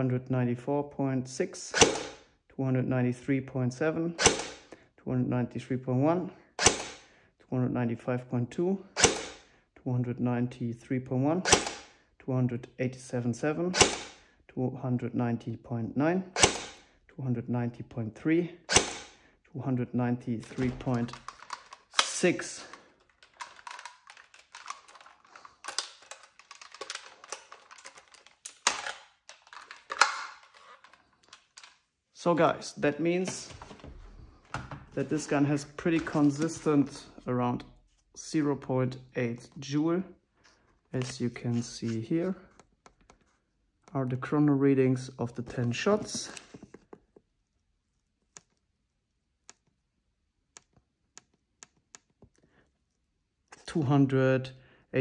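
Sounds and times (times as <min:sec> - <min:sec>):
rifle handling clicks and taps: 0:20.5 - 0:31.8.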